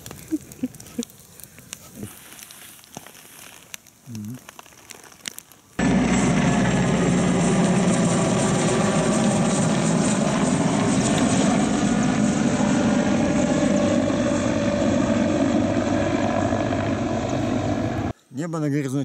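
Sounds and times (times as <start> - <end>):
helicopter engine noise: 5.8 - 18.1
helicopter rotor beating: 5.8 - 18.1.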